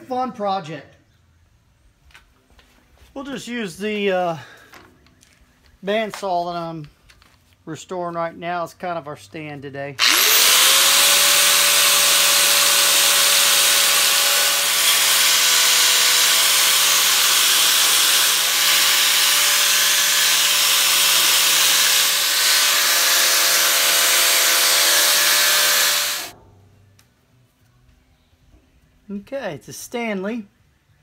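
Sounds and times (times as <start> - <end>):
angle grinder whine: 10.0 - 26.3.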